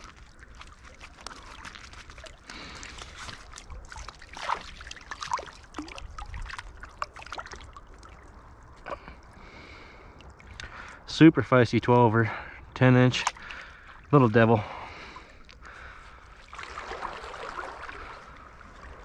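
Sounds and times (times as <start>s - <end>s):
fish splashing in landing net: 0.0s - 8.2s, 16.5s - 18.2s
river current washing: 0.0s - 11.2s, 13.1s - 19.0s.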